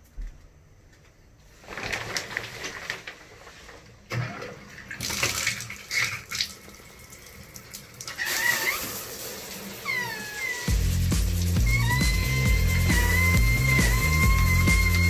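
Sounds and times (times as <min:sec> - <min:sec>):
shower curtain rattling: 0:01.5 - 0:04.0, 0:09.8 - 0:15.0
water splashing in bathtub: 0:01.7 - 0:15.0
wavering high tone: 0:11.6 - 0:15.0.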